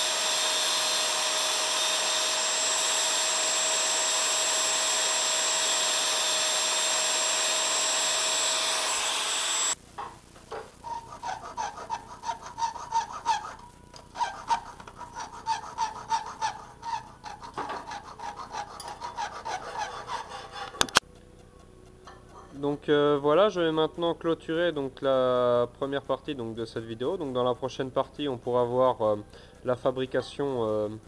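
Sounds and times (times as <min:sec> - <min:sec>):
angle grinder cutting steel: 0:00.0 - 0:09.8, 0:10.8 - 0:21.0
hand tool scraping steel: 0:10.5 - 0:21.0.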